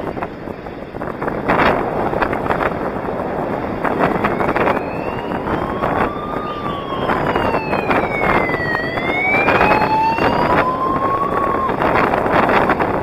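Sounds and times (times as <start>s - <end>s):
wind and road noise: 0.0s - 13.0s
siren wailing: 3.8s - 12.7s.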